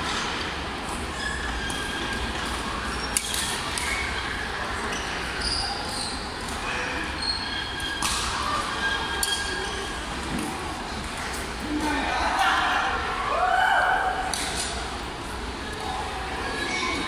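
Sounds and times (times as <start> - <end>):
shoe squeaks: 1.1 - 10.1.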